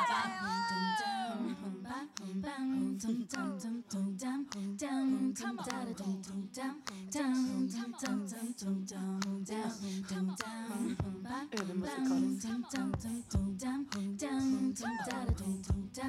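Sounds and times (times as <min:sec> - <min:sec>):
woman singing: 0:00.0 - 0:16.0
percussive clicking beat: 0:12.7 - 0:14.2, 0:15.1 - 0:16.0.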